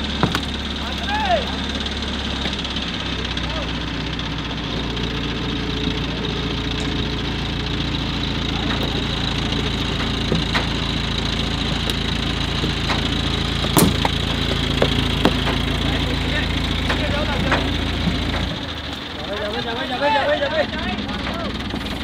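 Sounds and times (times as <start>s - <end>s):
car body cracking and creaking: 0.0s - 1.2s, 8.3s - 19.0s
diesel engines running: 0.0s - 22.0s.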